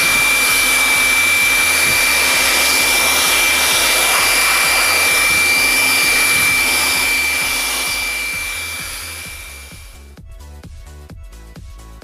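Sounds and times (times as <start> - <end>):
electric air blower whining: 0.0 - 10.1.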